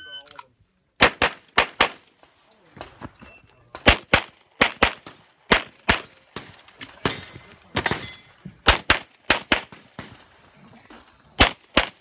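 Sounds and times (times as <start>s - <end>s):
pistol shots: 1.0s - 2.0s, 3.8s - 7.2s, 7.8s - 10.3s, 11.4s - 12.0s.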